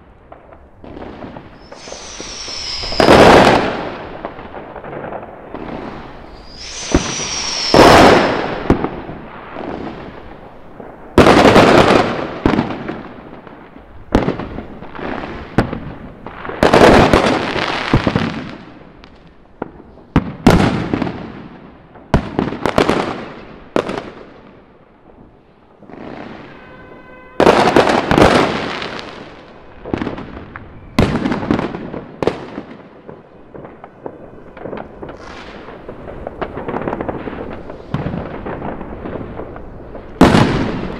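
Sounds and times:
fireworks banging and crackling: 0.0s - 40.9s
firework falling whistle: 1.5s - 4.4s, 5.8s - 9.2s.

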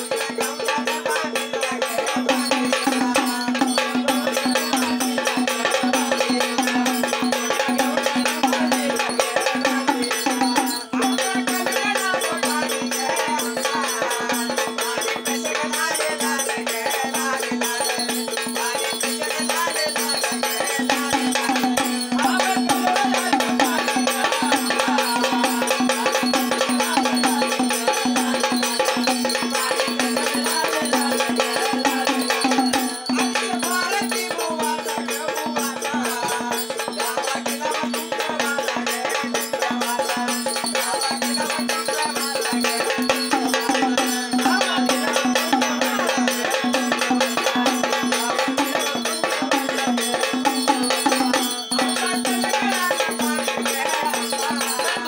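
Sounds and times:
fast rattling jingling percussion: 0.0s - 55.0s.

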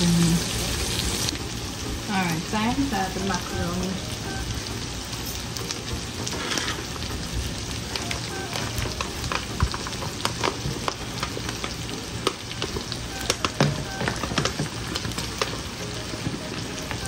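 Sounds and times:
food sizzling in frying pan: 0.0s - 17.0s
utensil scraping pan: 6.3s - 6.9s.

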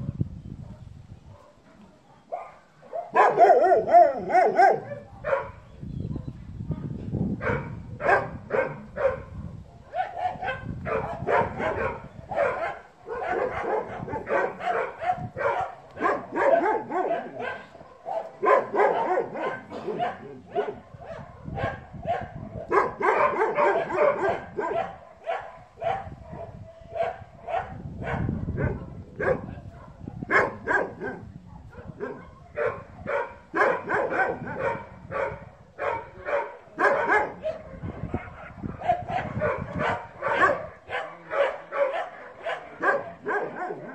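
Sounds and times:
dogs barking: 0.0s - 6.4s, 7.4s - 43.9s.

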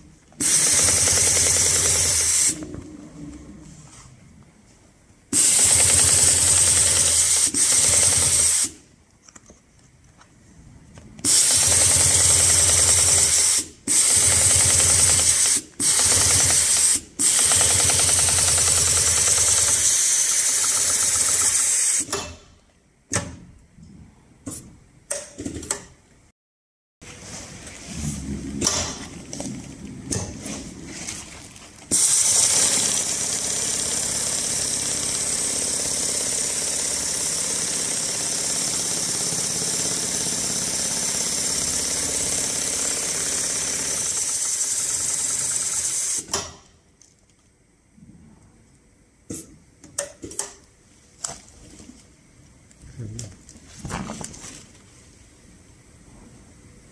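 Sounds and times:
sewing machine rattling: 0.4s - 2.6s, 5.4s - 8.7s, 11.3s - 22.0s, 31.9s - 46.2s.

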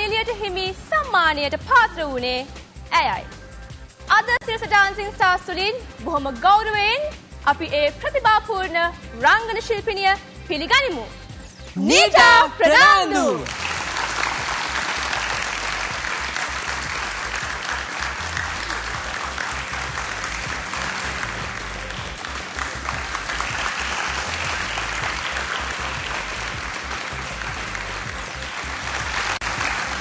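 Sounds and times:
audience applauding: 11.8s - 30.0s.

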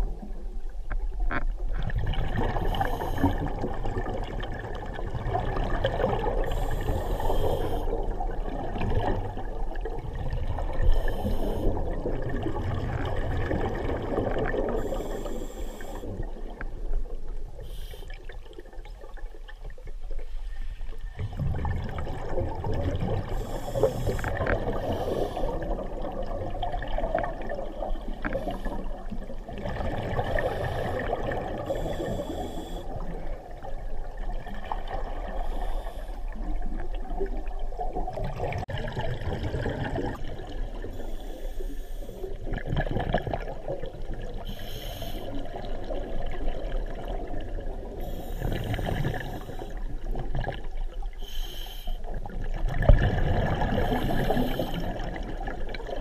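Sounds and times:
exhaled bubbles underwater: 0.0s - 56.0s
diver breathing through regulator: 2.5s - 3.6s, 6.4s - 8.0s, 10.8s - 11.9s, 14.7s - 16.2s, 17.6s - 18.4s, 23.3s - 25.8s, 30.2s - 33.0s, 35.3s - 36.4s, 40.9s - 42.4s, 44.4s - 45.6s, 48.0s - 49.9s, 51.2s - 52.1s, 53.7s - 55.2s.

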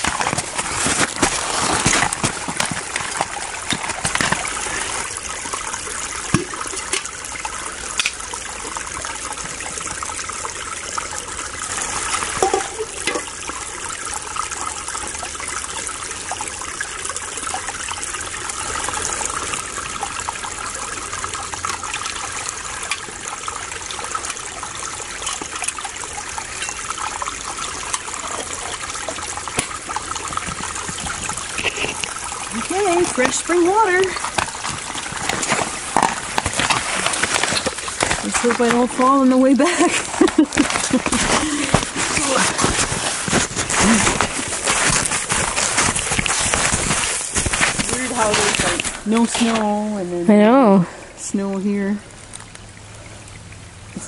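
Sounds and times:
stream water trickling: 0.0s - 54.0s
knocks and clinks of scooping: 12.0s - 13.4s.

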